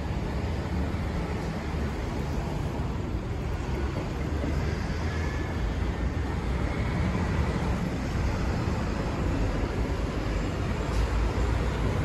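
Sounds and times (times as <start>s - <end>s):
low rumble of road traffic: 0.0s - 12.0s.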